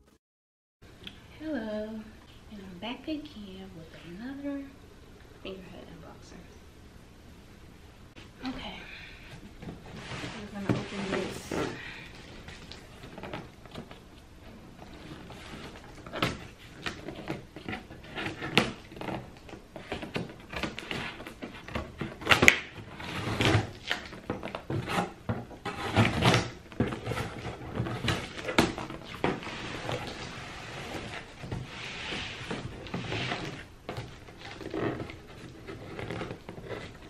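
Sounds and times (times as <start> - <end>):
cardboard and tape rustling: 9.3 - 37.0.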